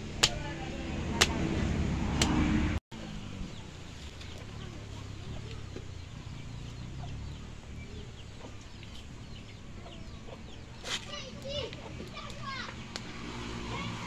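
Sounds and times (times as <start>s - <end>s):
chickens clucking: 3.5s - 13.0s.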